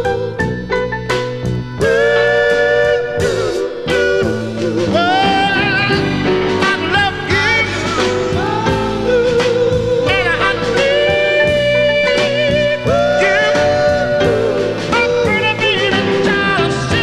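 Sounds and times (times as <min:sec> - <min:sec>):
band with guitar: 0:00.0 - 0:17.0
man singing with vibrato: 0:01.8 - 0:17.0.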